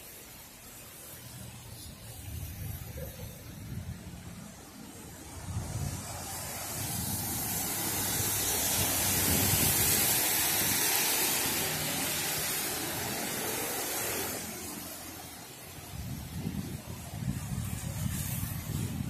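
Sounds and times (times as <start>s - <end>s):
rushing hiss: 0.0s - 19.0s.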